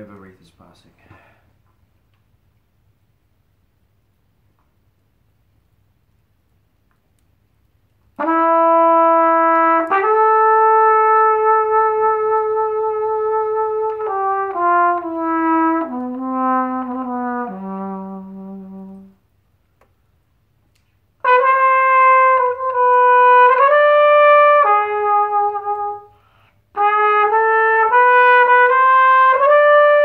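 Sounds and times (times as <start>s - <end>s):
trumpet playing slow blues: 8.1s - 19.5s, 21.0s - 30.0s.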